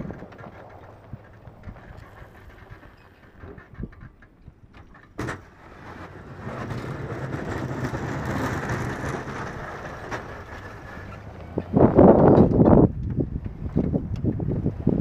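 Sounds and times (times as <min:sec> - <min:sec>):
plow pushing snow: 0:00.0 - 0:15.0
pickup truck engine: 0:05.4 - 0:15.0.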